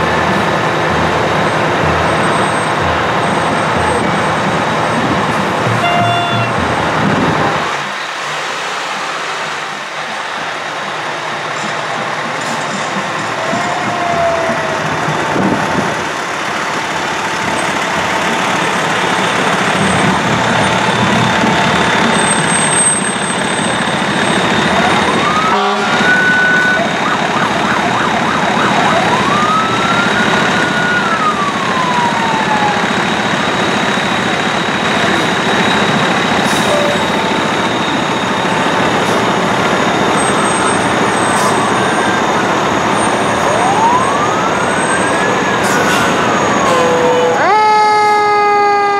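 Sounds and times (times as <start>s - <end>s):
fire engine diesel engines: 0.0s - 48.9s
siren winding up: 22.2s - 33.8s.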